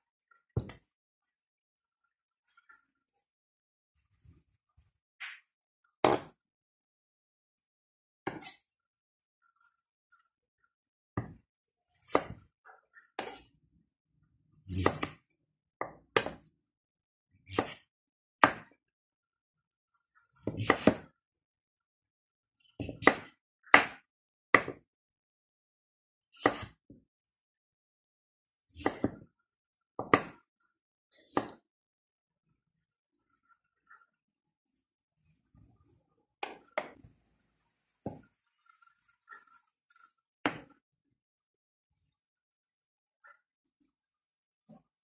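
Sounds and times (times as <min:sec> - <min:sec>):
knife chopping on wooden board: 0:06.0 - 0:06.4, 0:12.1 - 0:12.4, 0:14.7 - 0:15.2, 0:16.1 - 0:16.4, 0:17.5 - 0:17.8, 0:18.4 - 0:18.7, 0:20.5 - 0:21.1, 0:22.8 - 0:24.0, 0:26.4 - 0:26.8, 0:28.8 - 0:29.2, 0:30.0 - 0:30.4, 0:31.3 - 0:31.6, 0:40.5 - 0:40.7.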